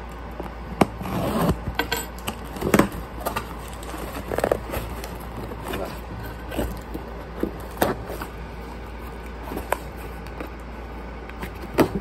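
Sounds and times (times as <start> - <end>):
steady low hum: 0.0 - 12.0
fingers scraping cardboard: 2.8 - 10.5.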